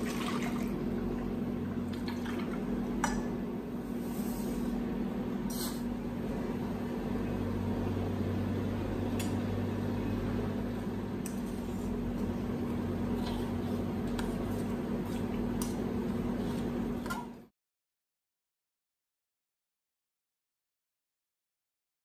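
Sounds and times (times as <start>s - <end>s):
mechanical hum: 0.0s - 17.5s.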